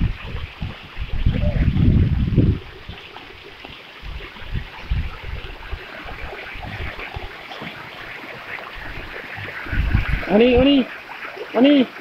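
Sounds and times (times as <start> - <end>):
low rumbles: 0.0 - 8.1
rain falling: 0.0 - 12.0.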